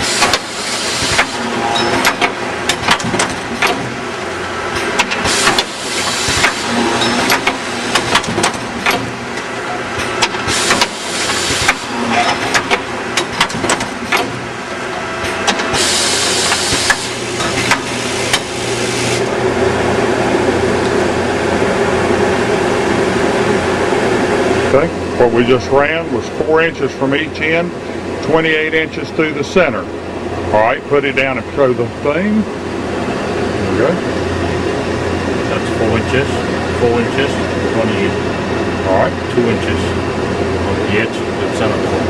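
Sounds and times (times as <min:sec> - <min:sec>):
pneumatic clamp clacks: 0:00.2 - 0:03.9, 0:04.7 - 0:14.5, 0:15.2 - 0:18.5
air hissing: 0:15.7 - 0:19.3.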